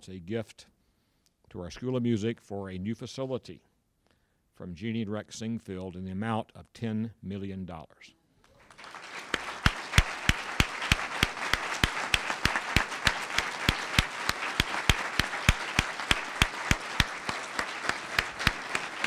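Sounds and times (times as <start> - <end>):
loud sharp hand claps: 8.5 - 19.0
audience applauding: 8.6 - 19.0.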